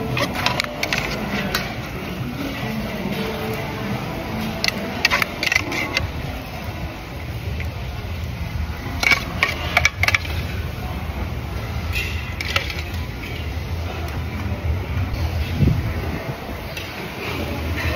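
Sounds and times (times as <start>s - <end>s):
metal utensils clinking on dishes: 0.0s - 3.6s, 4.3s - 6.3s, 8.8s - 10.6s, 11.8s - 13.6s.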